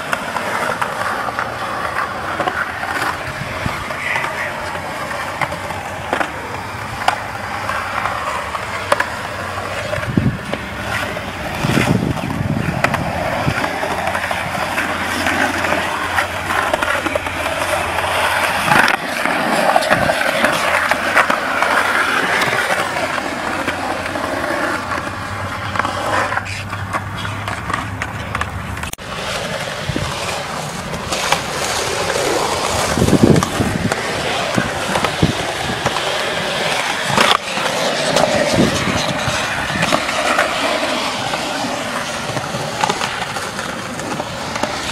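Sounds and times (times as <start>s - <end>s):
skateboard clacking on ground: 0.0s - 44.9s
skateboard wheels rolling on concrete: 0.0s - 44.9s.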